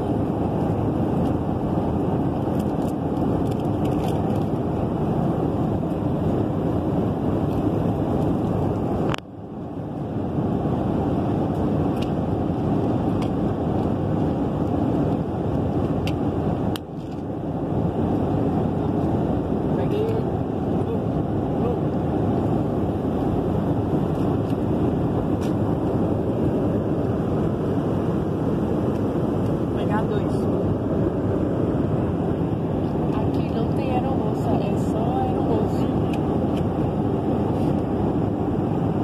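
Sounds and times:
airliner cabin roar: 0.0 - 39.0.

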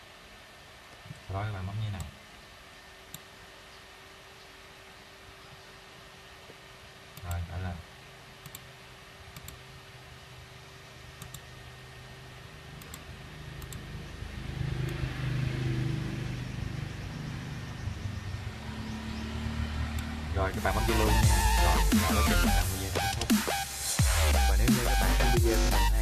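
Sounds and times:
faint clicks: 9.3 - 9.6, 11.2 - 11.5, 12.8 - 13.9
vehicle engine passing: 13.3 - 21.9.

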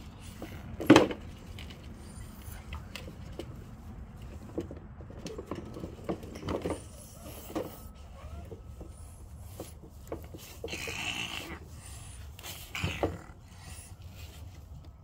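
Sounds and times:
plastic toy truck knocks and clicks: 0.8 - 1.2.

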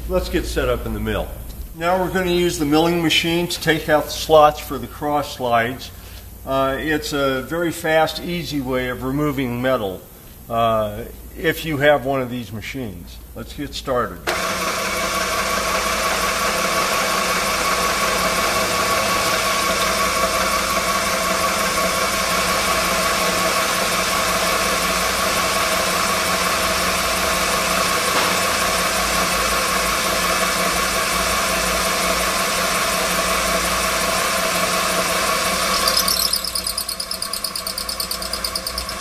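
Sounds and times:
milling machine humming and whining: 14.3 - 39.0.

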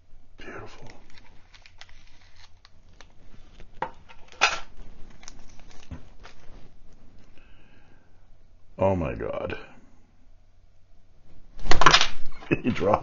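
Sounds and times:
plastic sleeve crinkling: 0.4 - 7.4.

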